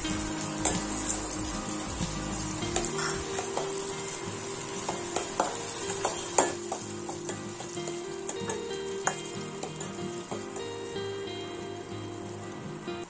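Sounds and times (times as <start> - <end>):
cashews frying in sizzling butter: 0.0 - 13.0
spoon clinking and scraping pan: 0.6 - 10.8.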